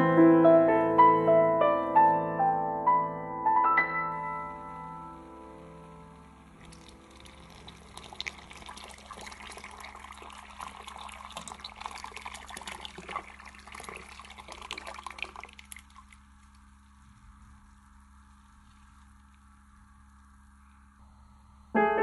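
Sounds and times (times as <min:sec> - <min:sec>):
faint steady hum: 0:00.0 - 0:22.0
liquid pouring into milk: 0:06.5 - 0:17.2.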